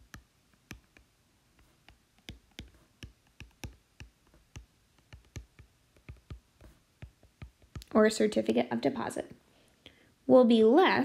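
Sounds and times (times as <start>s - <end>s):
stylus tapping on glass screen: 1.8s - 7.9s.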